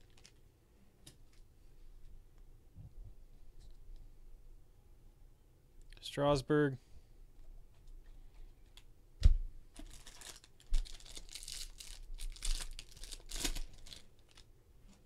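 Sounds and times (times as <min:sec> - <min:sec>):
foil wrapper tearing and crinkling: 0:00.0 - 0:00.4, 0:09.8 - 0:14.5.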